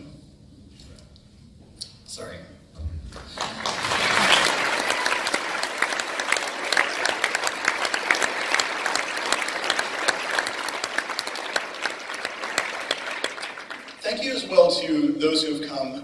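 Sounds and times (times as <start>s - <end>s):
audience applauding: 3.1s - 14.6s.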